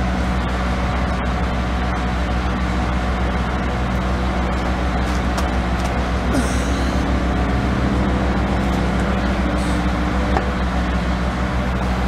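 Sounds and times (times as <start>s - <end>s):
low mechanical rumble with hum: 0.0s - 12.0s.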